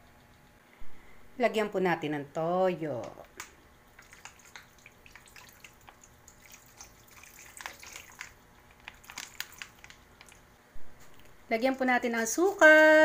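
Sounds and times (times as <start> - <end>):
liquid trickling into a pan: 4.0 - 10.4.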